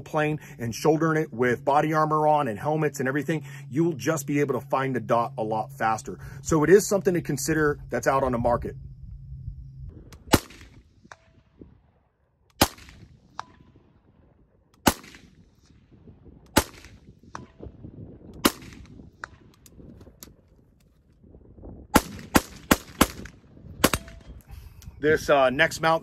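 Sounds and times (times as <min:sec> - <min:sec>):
rifle gunshots: 0:10.2 - 0:10.8, 0:12.6 - 0:13.2, 0:14.8 - 0:15.4, 0:16.5 - 0:17.0, 0:18.4 - 0:19.5, 0:21.9 - 0:24.2.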